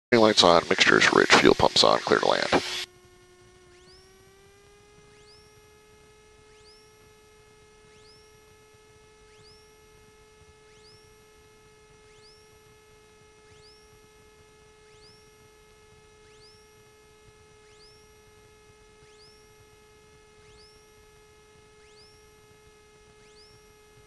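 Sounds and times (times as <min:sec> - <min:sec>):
faint electrical whine: 0:00.1 - 0:24.0
short rising chirp: 0:03.7 - 0:05.8, 0:06.4 - 0:07.2, 0:07.8 - 0:08.5, 0:09.2 - 0:10.0, 0:10.6 - 0:11.3, 0:12.0 - 0:12.7, 0:13.4 - 0:14.1, 0:14.8 - 0:15.5, 0:16.2 - 0:18.3, 0:19.0 - 0:19.7, 0:20.4 - 0:21.0, 0:21.7 - 0:23.8.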